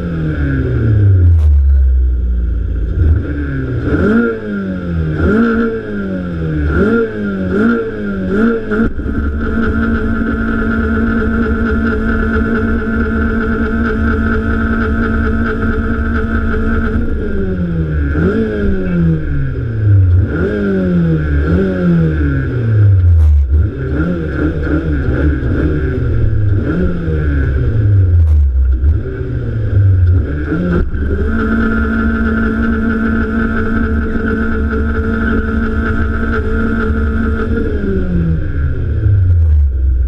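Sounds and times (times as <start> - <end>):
engine revving hard: 3.0 - 10.8, 17.0 - 39.2.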